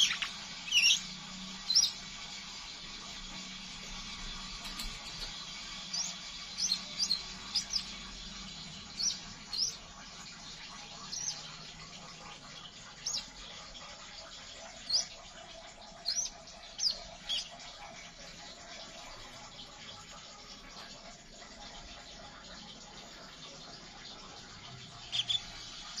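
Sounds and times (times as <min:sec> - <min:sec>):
bird chirping: 0:00.0 - 0:02.1, 0:04.7 - 0:10.0, 0:10.9 - 0:11.7, 0:12.9 - 0:13.3, 0:14.7 - 0:15.2, 0:15.9 - 0:17.6, 0:25.0 - 0:26.0.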